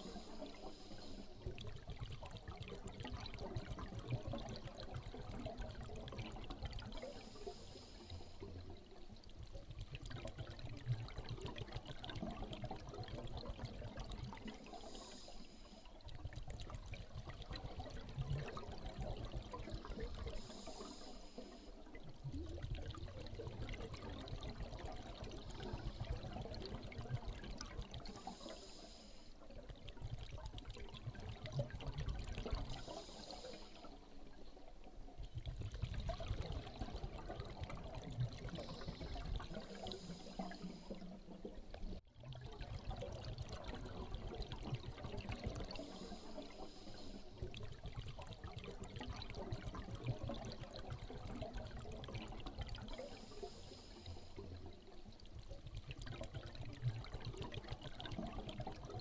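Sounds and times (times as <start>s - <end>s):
regulator inhalation hiss: 0.0s - 1.4s, 7.1s - 8.5s, 14.7s - 15.9s, 20.4s - 21.8s, 28.1s - 29.4s, 32.8s - 34.0s, 38.6s - 41.0s, 45.7s - 47.4s, 53.0s - 54.4s
exhaled air bubbling underwater: 0.0s - 59.0s.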